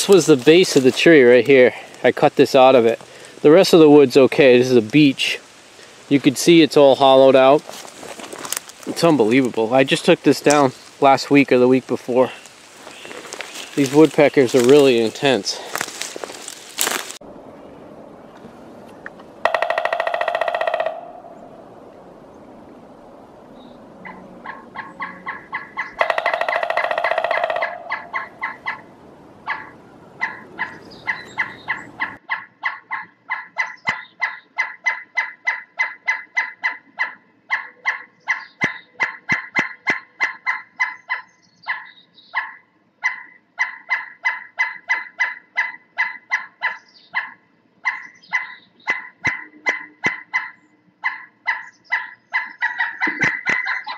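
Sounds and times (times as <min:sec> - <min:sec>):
woodpecker calling kuk notes: 0:08.8 - 0:15.5, 0:18.9 - 0:22.6, 0:23.5 - 0:53.9.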